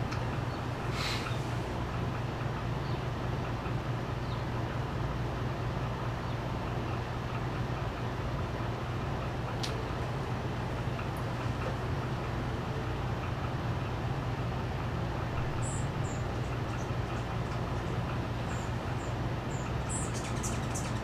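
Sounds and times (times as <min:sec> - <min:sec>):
steady low hum: 0:00.0 - 0:21.0
brief hiss: 0:00.9 - 0:01.4.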